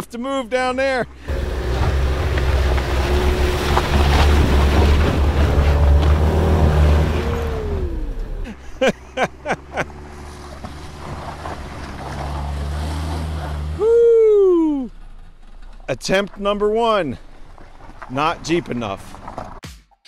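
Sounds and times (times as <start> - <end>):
car engine revving hard: 1.2 - 13.8
tires spinning in mud: 1.2 - 19.6.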